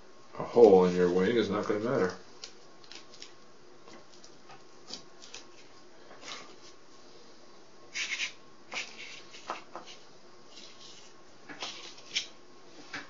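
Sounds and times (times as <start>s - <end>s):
paper and wood strips rustling: 0.4s - 6.8s, 7.9s - 12.3s.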